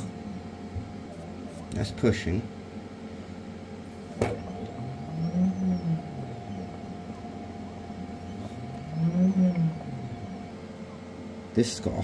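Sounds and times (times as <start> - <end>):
air pump humming: 0.0 - 12.0
low tone: 4.3 - 11.4.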